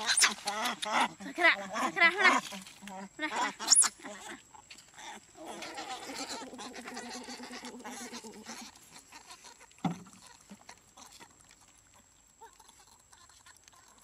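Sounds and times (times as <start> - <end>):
baby monkey crying: 0.0 - 1.1, 3.3 - 4.0, 5.0 - 9.6.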